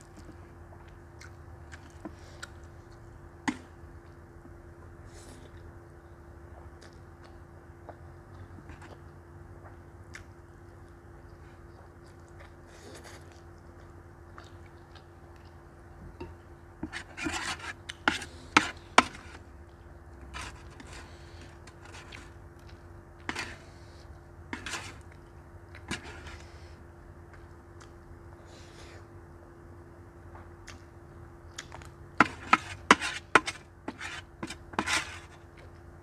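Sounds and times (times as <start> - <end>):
utensils scraping metal tray: 24.6 - 25.0, 32.2 - 35.4.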